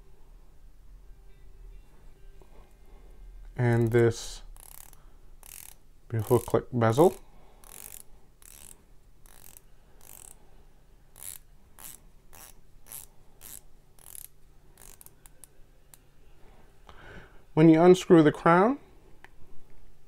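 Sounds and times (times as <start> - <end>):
dive bezel ratcheting clicks: 4.6 - 10.4, 11.2 - 15.5.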